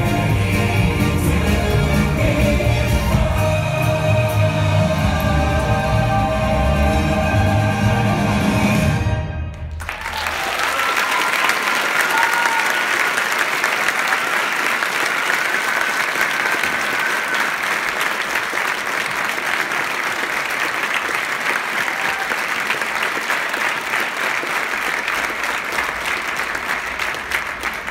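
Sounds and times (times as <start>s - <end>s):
audience applauding: 9.7s - 27.9s.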